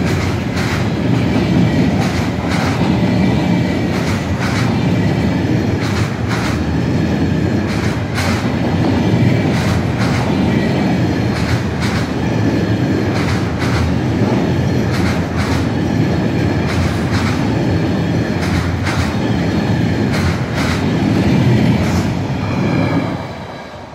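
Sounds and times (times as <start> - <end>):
wheels clacking over rail joints: 0.0 - 4.9, 5.7 - 6.6, 7.6 - 10.4, 11.2 - 12.2, 13.0 - 15.7, 18.3 - 19.2, 20.0 - 20.9
train rumbling past: 0.0 - 23.9.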